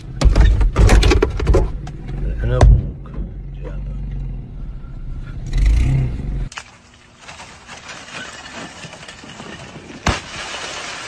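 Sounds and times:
ice shattering and sliding: 6.6s - 11.0s
ice cracking and knocking: 7.2s - 11.0s
ice crashing on pavement: 7.2s - 11.0s.

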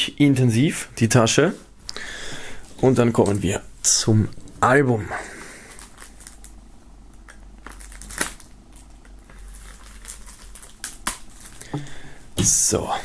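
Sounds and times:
plastic film crinkling: 5.0s - 11.8s
knife slitting plastic wrap: 7.7s - 8.5s.

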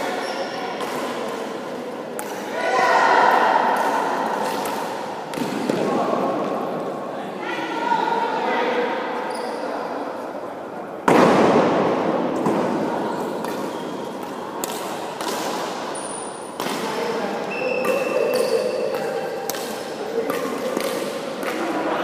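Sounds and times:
rackets striking shuttlecock: 2.2s - 2.5s, 13.4s - 17.0s, 17.8s - 21.9s.

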